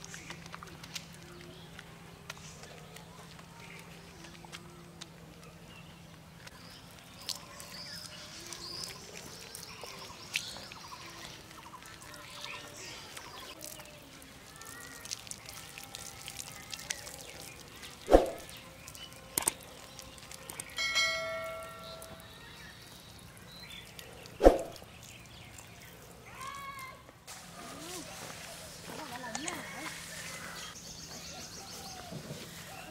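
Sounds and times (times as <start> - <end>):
small birds chirping: 0.0 - 26.9
water dripping onto soil: 0.0 - 27.2, 29.0 - 30.0
water pouring and splashing: 6.9 - 30.7.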